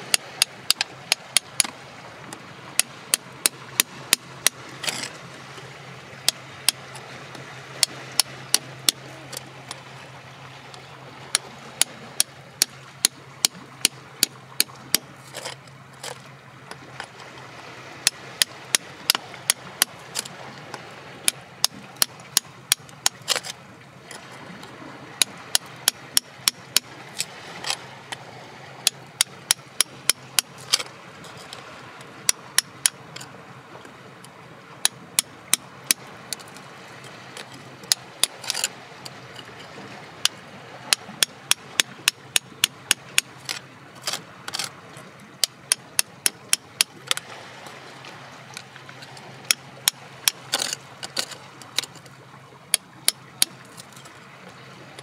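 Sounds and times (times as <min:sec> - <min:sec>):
hand tool chipping rock: 0:00.0 - 0:01.8, 0:02.8 - 0:05.2, 0:06.3 - 0:06.8, 0:11.3 - 0:16.2, 0:21.3 - 0:23.6, 0:25.2 - 0:27.8, 0:28.8 - 0:31.6, 0:32.3 - 0:33.0, 0:34.8 - 0:36.5, 0:37.4 - 0:38.7, 0:40.9 - 0:44.7, 0:45.4 - 0:47.2, 0:49.5 - 0:52.0.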